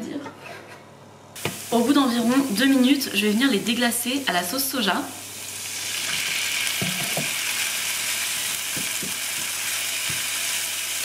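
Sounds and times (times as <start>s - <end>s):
garlic sizzling in frying pan: 1.4s - 11.0s
wooden spoon knocking on pan: 6.8s - 7.4s, 8.7s - 10.3s.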